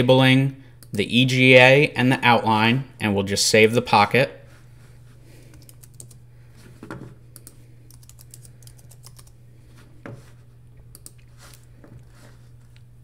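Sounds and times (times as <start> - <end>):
low steady hum: 0.0 - 13.0
keyboard typing: 5.5 - 6.2, 7.4 - 9.4, 10.9 - 11.2.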